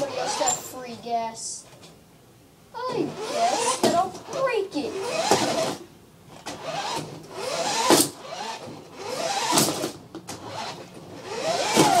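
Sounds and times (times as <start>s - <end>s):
toy car electric motor whining: 3.1s - 3.9s, 4.9s - 5.8s, 6.5s - 12.0s.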